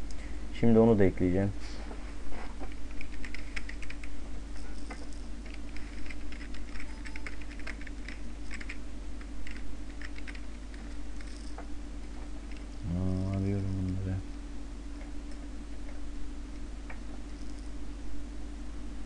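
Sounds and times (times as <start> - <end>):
steady low hum: 0.0 - 19.0
keyboard typing clicks: 2.8 - 4.2, 4.9 - 11.5.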